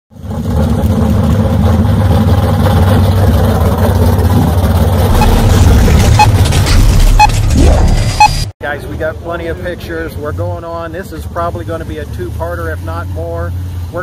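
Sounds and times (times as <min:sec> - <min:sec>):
car engine rumbling: 0:00.1 - 0:14.0
short beeps: 0:05.1 - 0:06.4, 0:07.0 - 0:07.4, 0:08.0 - 0:08.5.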